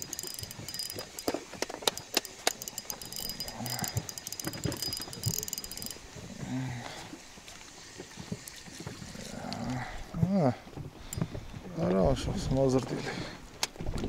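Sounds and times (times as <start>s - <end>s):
fishing reel clicking and rattling: 0.0s - 6.2s.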